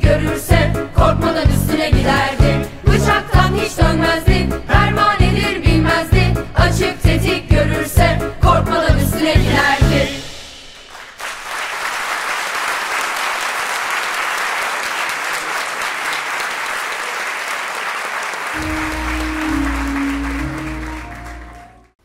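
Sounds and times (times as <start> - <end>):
audience applauding: 10.8 - 22.0
low held music notes: 18.6 - 22.0.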